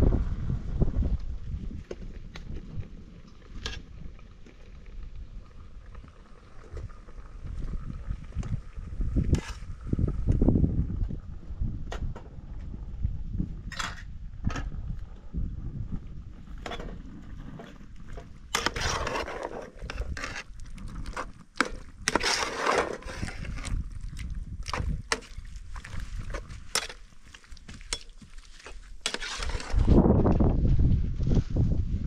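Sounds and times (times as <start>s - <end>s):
low rumble: 0.0s - 1.8s
metal ladle scraping steel pot: 9.3s - 9.7s, 18.2s - 23.8s, 26.1s - 30.0s.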